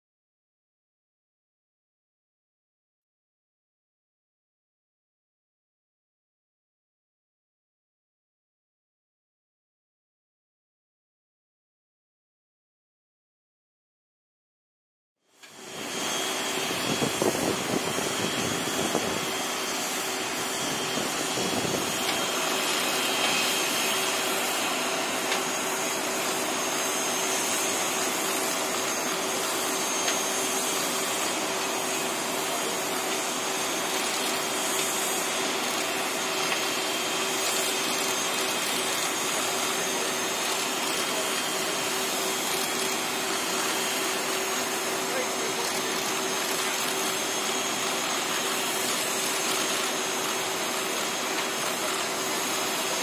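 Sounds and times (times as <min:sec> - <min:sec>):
high whine: 0:15.4 - 0:53.0
jet turbines running: 0:15.4 - 0:53.0.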